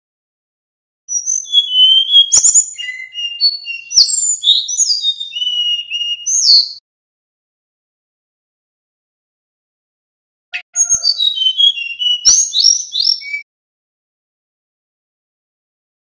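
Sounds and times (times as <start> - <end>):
bird singing high whistled notes: 1.1 - 6.8, 10.6 - 13.5.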